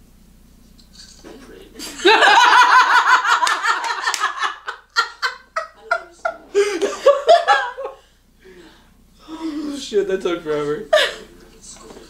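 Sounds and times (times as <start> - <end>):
group of people laughing: 1.8 - 8.0.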